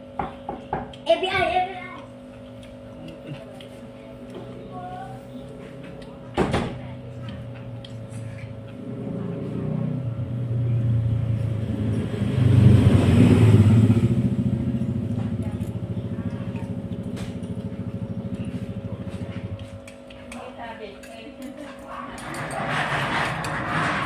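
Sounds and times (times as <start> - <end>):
vehicle engine passing by: 8.2 - 19.6, 22.0 - 24.0.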